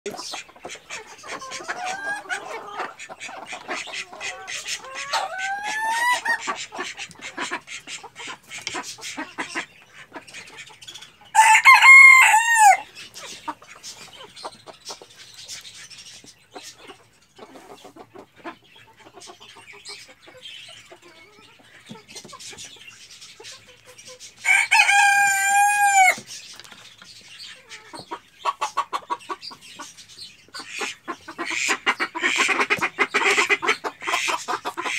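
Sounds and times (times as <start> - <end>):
hens clucking: 0.1 - 34.9
birds scratching and clicking: 6.3 - 9.6, 26.0 - 27.3
rooster crowing: 11.4 - 12.8, 24.4 - 26.2.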